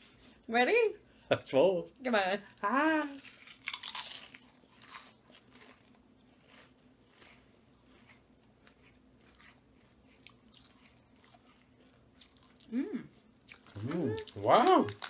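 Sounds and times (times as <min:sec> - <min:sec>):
chewing potato chips: 0:03.2 - 0:15.0.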